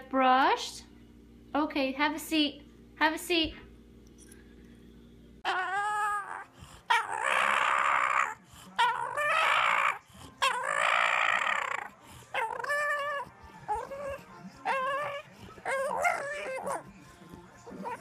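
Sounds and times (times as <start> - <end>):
dog whining and moaning: 5.4 - 17.0, 17.7 - 18.0.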